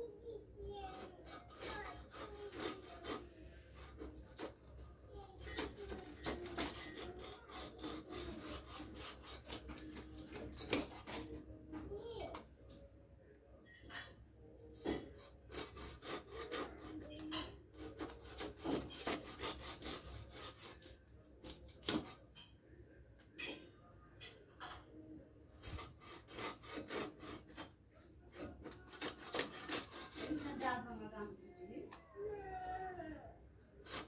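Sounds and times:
fish scraped against blade: 0.9s - 4.6s, 14.8s - 21.0s, 25.6s - 27.7s, 28.4s - 30.6s.

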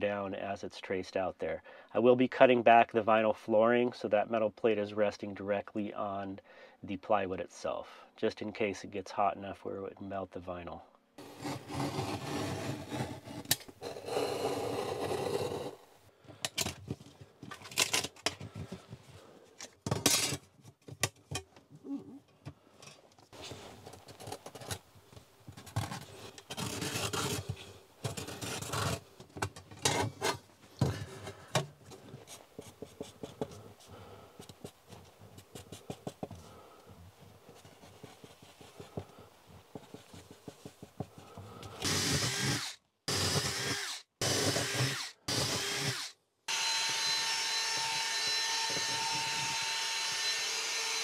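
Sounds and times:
marker pen scratching: 11.2s - 15.8s
metal plate scraping on vinyl floor: 11.2s - 15.9s, 25.8s - 29.0s.

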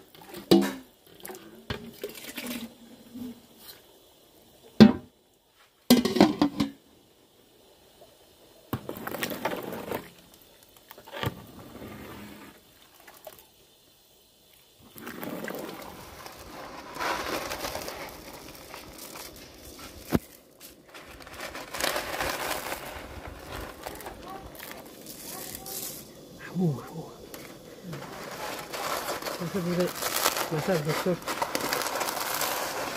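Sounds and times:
dry noodles rustling: 14.9s - 32.9s
metal ladle scraping a pot: 27.3s - 32.9s.

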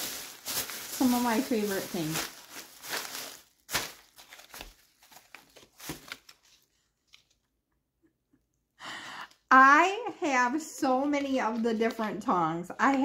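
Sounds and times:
packaging crinkling: 0.0s - 7.4s.

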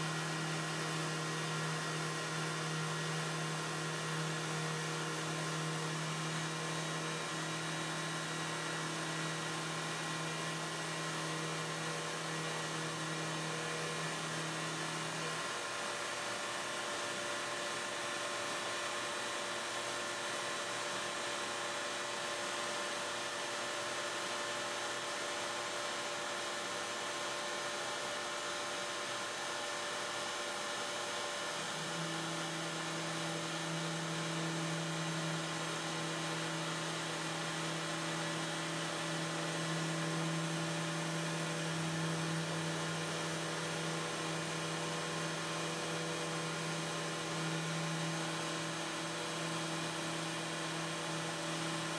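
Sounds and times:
router bit grinding carbon fiber: 23.2s - 51.9s.

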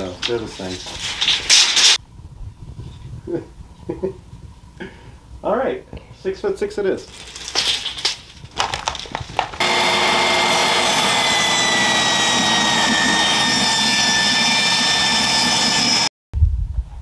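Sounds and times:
table saw ripping board: 0.7s - 2.0s, 7.4s - 16.1s.

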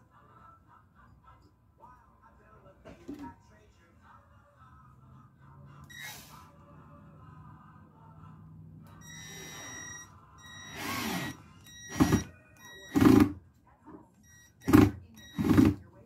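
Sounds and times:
cordless drill driving screw: 9.1s - 9.8s, 10.6s - 12.3s.

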